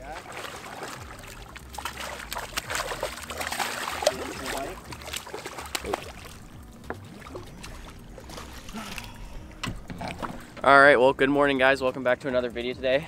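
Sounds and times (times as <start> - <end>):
fish splashing at surface: 0.0 - 6.5.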